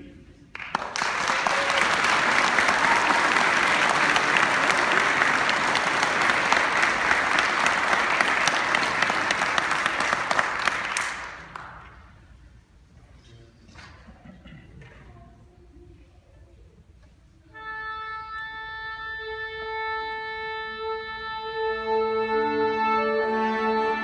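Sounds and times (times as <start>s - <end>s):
audience applauding: 0.5s - 12.1s.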